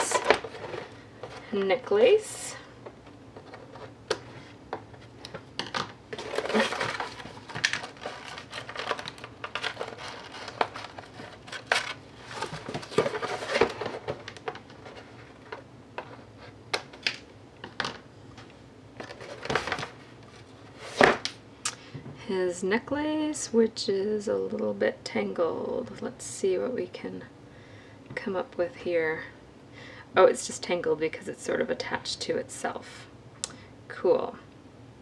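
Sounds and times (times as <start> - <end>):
cardboard rustling and scraping: 0.0 - 1.9, 2.9 - 5.5, 6.1 - 16.6, 19.0 - 21.3.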